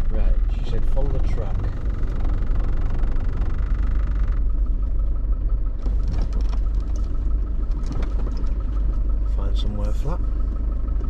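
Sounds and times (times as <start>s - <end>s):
vehicle engine rumble from inside cab: 0.0s - 11.0s.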